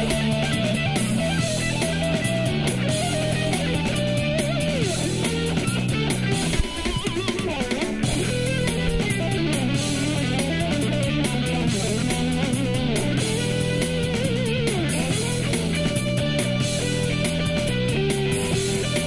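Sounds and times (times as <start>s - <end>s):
low bass line: 0.0s - 6.6s, 8.0s - 19.0s
drums: 0.0s - 19.0s
electric ukulele melody: 0.0s - 19.0s.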